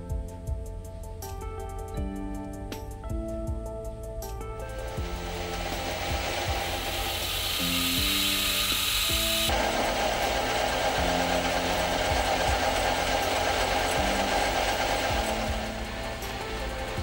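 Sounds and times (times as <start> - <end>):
soft background music: 0.0 - 17.0
lathe cutting metal rod: 4.8 - 17.0.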